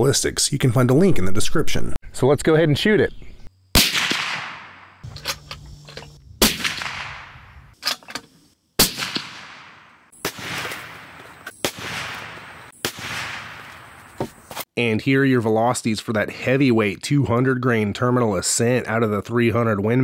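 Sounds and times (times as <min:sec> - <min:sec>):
suppressed rifle shots echoing: 0:03.8 - 0:05.4, 0:06.4 - 0:07.8, 0:08.8 - 0:14.1.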